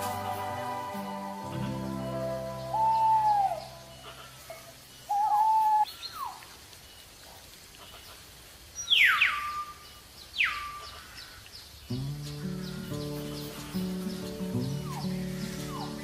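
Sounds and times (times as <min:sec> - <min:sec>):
whistled bird calls: 0:02.2 - 0:07.1, 0:08.8 - 0:16.0.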